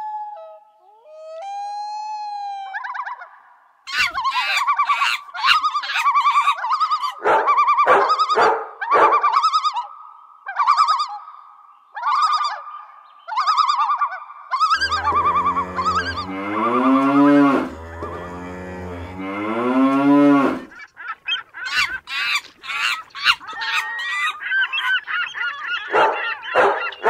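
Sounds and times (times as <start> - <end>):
small dogs howling: 3.9 - 7.2, 14.7 - 20.7, 22.7 - 27.0.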